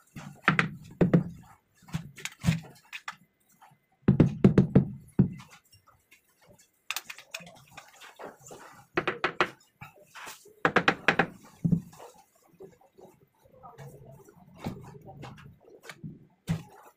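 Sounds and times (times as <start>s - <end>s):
faint scraping and clicking: 5.5s - 10.6s.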